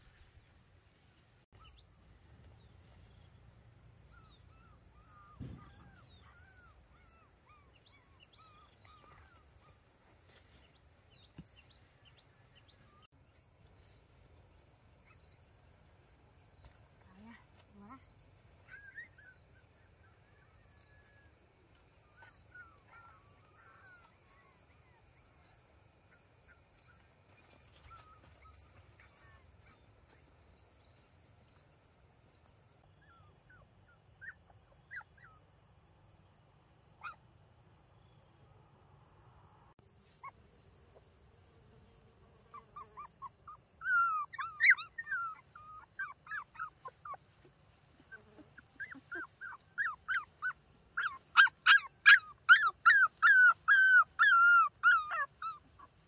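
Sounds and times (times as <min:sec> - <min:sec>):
puppies yelping and whimpering: 0:43.0 - 0:47.3, 0:48.4 - 0:55.9.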